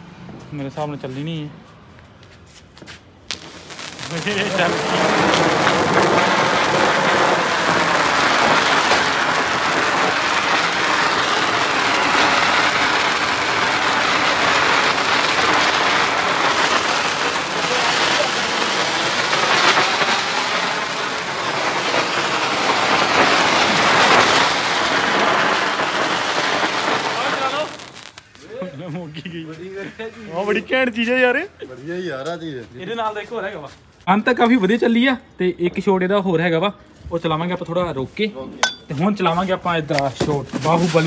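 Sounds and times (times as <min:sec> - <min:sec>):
sparkler firework hissing: 0:03.3 - 0:28.6.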